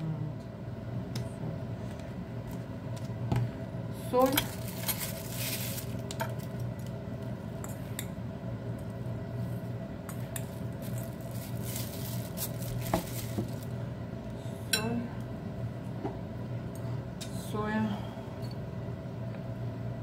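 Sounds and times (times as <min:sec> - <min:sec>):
steady low hum: 0:00.0 - 0:20.0
plastic bag rustling: 0:04.2 - 0:06.9, 0:10.5 - 0:13.8.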